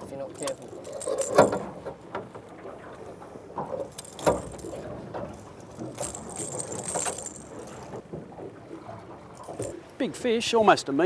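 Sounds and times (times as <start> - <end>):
light metallic clinks: 0.3 - 1.8, 3.8 - 8.0, 9.4 - 10.0
metallic jingle: 0.4 - 1.7, 3.9 - 8.0, 9.4 - 9.8.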